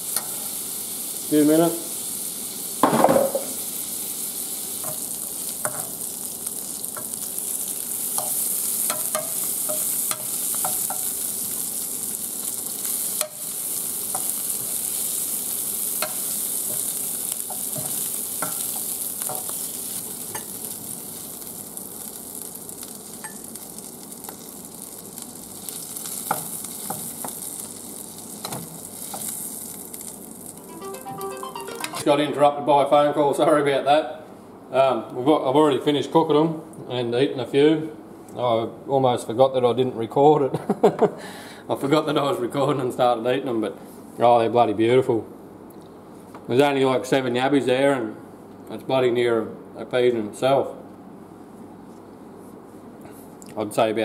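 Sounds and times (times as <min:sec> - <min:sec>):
food sizzling in a pan: 0:00.0 - 0:31.9.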